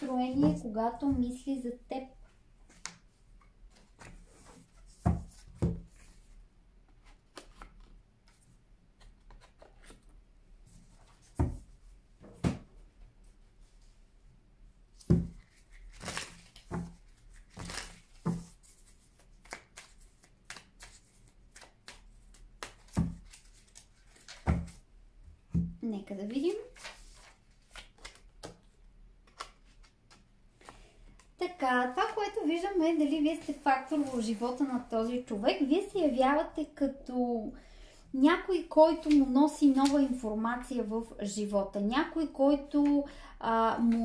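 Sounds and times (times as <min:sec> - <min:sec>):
card rustles: 0:26.3 - 0:31.3.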